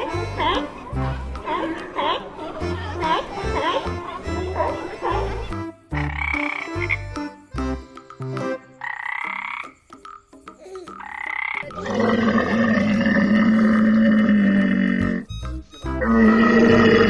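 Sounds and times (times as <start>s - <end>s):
tree frog calling: 5.9s - 7.0s, 8.8s - 15.4s.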